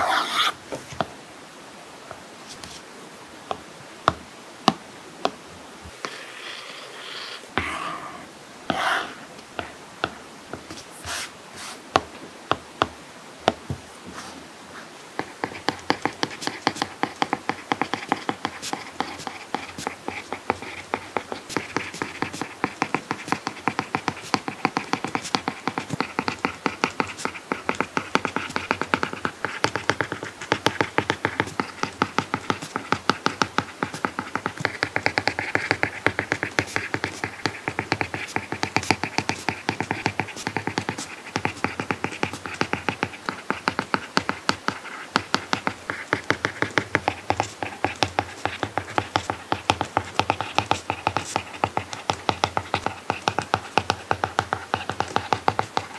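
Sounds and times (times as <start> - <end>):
stylus ticks and scratches writing: 0.0 - 1.0, 7.6 - 13.6, 14.9 - 55.9
stylus tapping on screen: 15.2 - 55.9.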